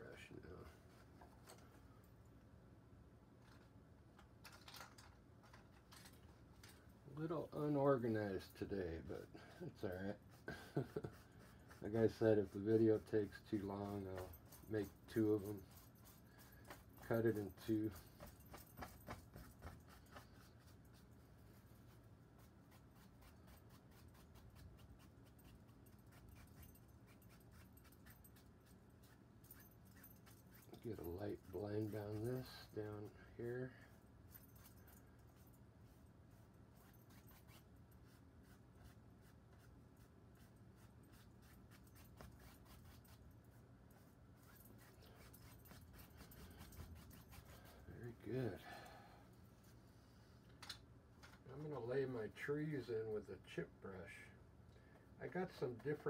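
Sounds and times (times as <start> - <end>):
low room hum: 0.0 - 56.0
brush scrubbing on canvas: 7.6 - 33.2, 35.3 - 48.6.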